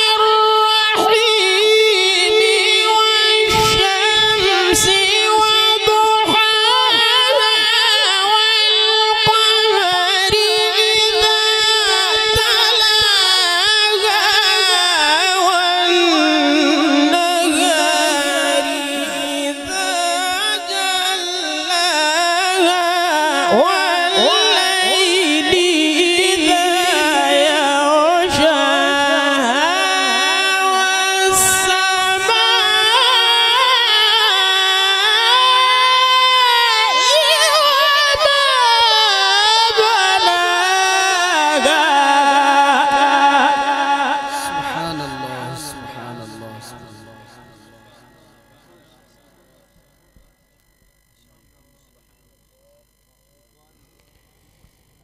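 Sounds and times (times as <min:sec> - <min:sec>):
man reciting melodically: 0:00.0 - 0:54.4.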